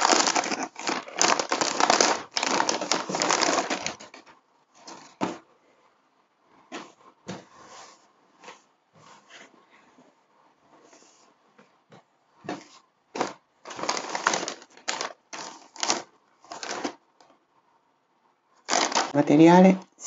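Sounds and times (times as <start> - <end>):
plastic bag crinkling: 0.0 - 5.4, 13.2 - 17.0, 18.6 - 19.2.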